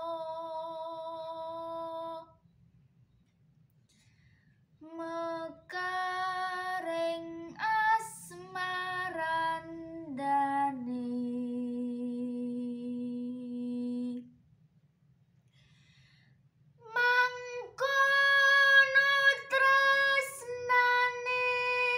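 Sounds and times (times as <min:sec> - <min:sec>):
girl singing unaccompanied: 0:00.0 - 0:02.4, 0:04.8 - 0:14.3, 0:16.8 - 0:21.9.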